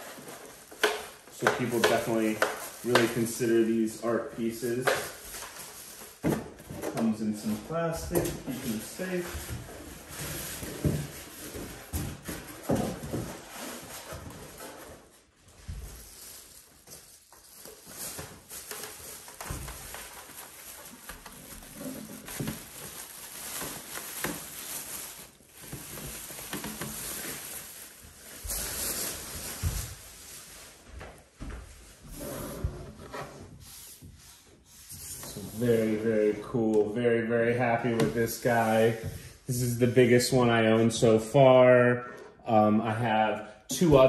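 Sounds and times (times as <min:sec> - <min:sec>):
plastic wrapping rustling: 0:00.0 - 0:32.1.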